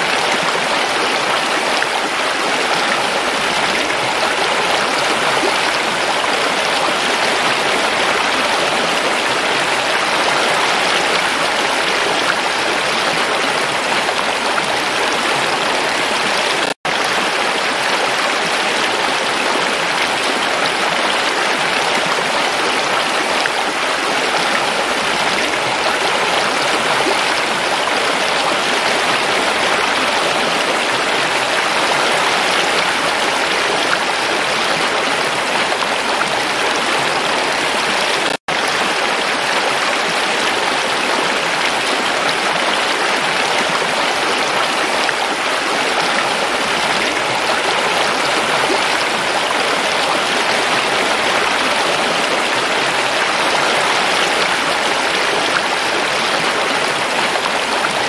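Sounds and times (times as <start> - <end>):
stream flowing over rocks: 0.0 - 58.0.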